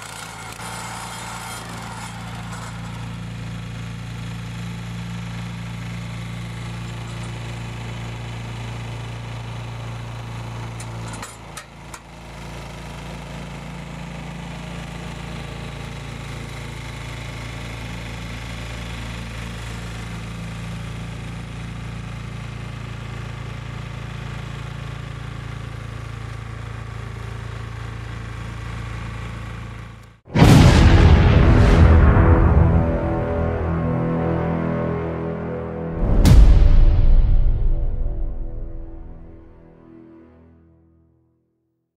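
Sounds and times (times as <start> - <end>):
petrol engine running: 0.0 - 30.1.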